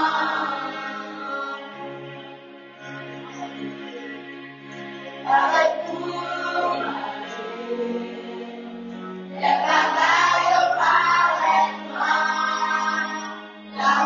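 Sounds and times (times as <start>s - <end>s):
choir singing: 0.0s - 2.2s, 5.2s - 14.0s.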